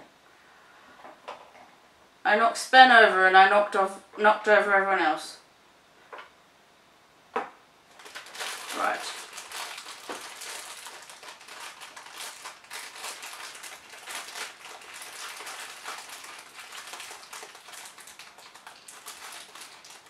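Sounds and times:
foil bag crinkling: 7.9s - 20.0s.

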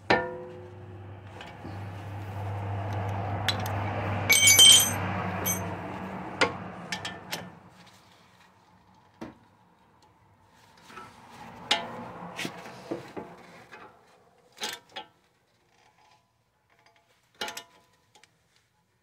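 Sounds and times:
hand tools clinking on metal: 3.6s - 5.7s
metal clanks: 4.3s - 5.7s.

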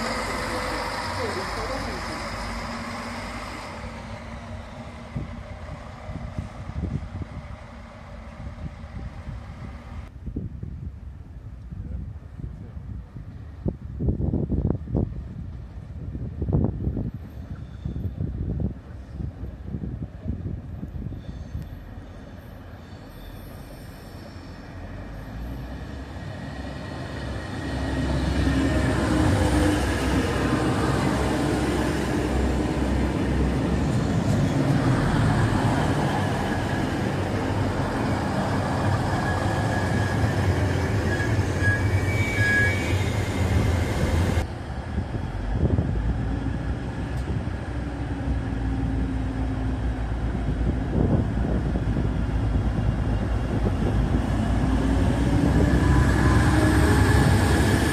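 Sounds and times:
diesel train engines running: 0.0s - 10.1s, 15.1s - 57.9s
high squeals: 37.7s - 44.4s.

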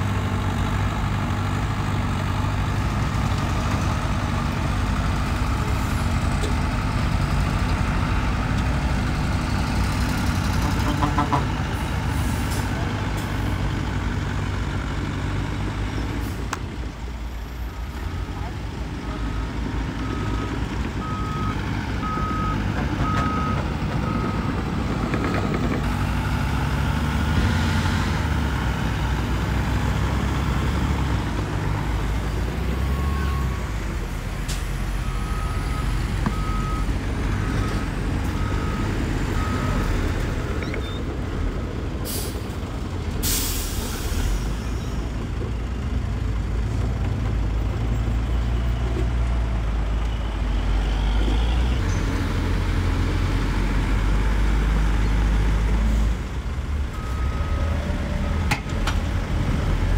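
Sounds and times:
heavy diesel machinery rumbling: 0.0s - 59.9s
reversing alarm beeping: 20.0s - 24.7s, 35.0s - 41.0s, 57.0s - 57.8s
short sharp hisses: 43.2s - 44.4s.

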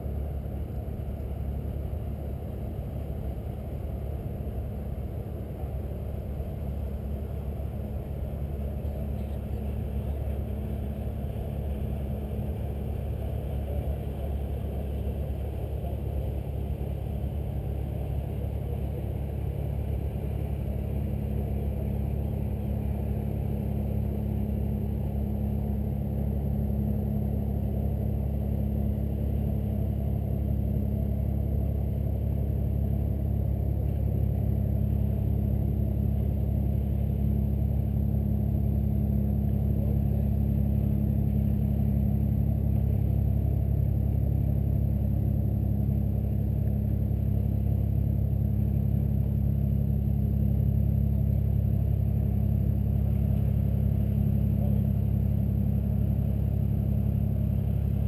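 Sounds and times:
boat engine drone: 0.0s - 58.0s.

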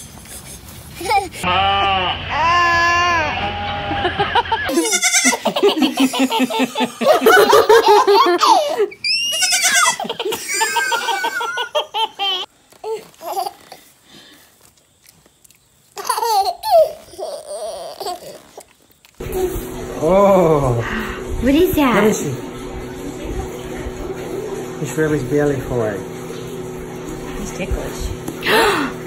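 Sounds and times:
baby laughing: 0.3s - 1.5s, 4.0s - 13.9s, 16.0s - 18.7s.

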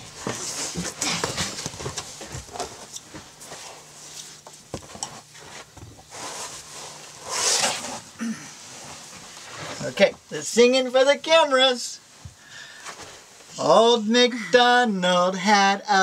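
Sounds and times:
rustling on upholstered couch: 0.0s - 10.0s.

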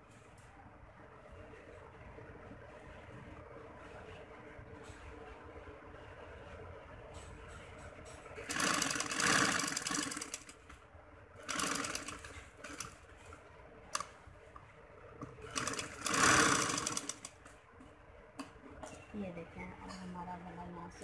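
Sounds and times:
sewing machine stitching: 8.4s - 10.6s, 11.4s - 13.0s, 15.4s - 17.4s.

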